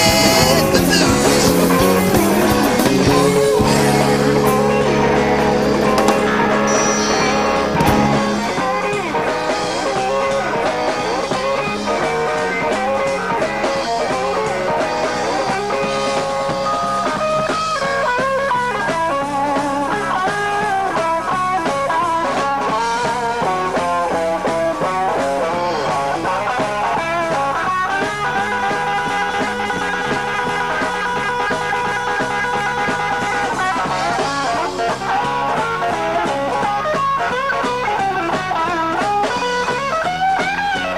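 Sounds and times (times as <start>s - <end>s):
drums: 0.0s - 40.9s
electric guitar lead: 0.0s - 40.9s
walking bass: 0.0s - 40.9s.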